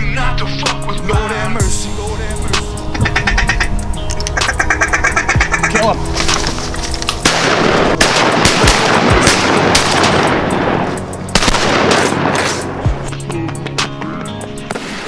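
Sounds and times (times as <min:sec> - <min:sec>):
rapid gunshots: 0:07.2 - 0:10.7, 0:11.3 - 0:12.7.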